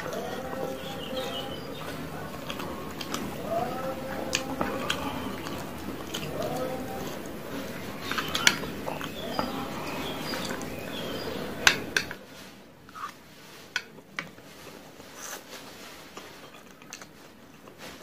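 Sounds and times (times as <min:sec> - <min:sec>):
chewing: 0:00.0 - 0:12.2, 0:15.2 - 0:18.0
chopsticks clicking on metal tray: 0:11.6 - 0:12.2.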